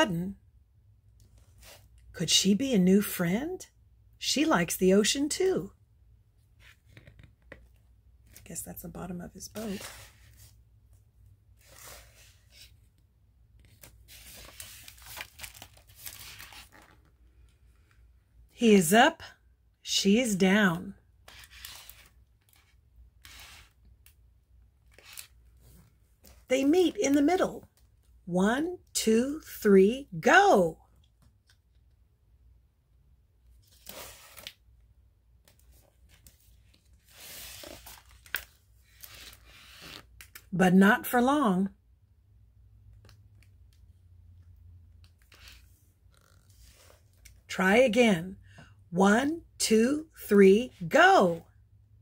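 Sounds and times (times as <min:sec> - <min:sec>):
paper page rustling: 0:09.6 - 0:10.6, 0:13.6 - 0:17.2, 0:21.3 - 0:23.8, 0:24.9 - 0:26.5, 0:35.5 - 0:40.2.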